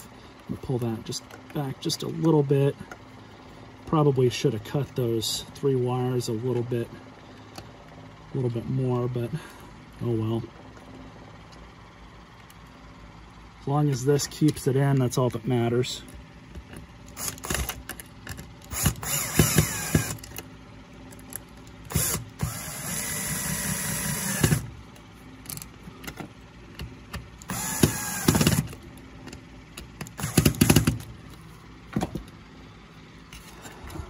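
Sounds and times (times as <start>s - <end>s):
cordless drill driving screws: 17.2s - 17.8s, 18.7s - 20.3s, 21.9s - 24.7s, 27.4s - 28.7s, 30.1s - 30.9s.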